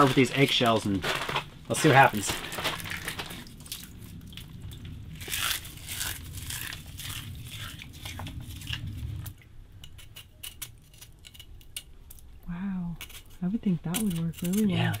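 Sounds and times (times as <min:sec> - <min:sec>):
eggshell pieces crunching: 0:00.0 - 0:03.9, 0:05.2 - 0:08.8
plastic bag crinkling: 0:00.0 - 0:04.4, 0:05.1 - 0:09.2.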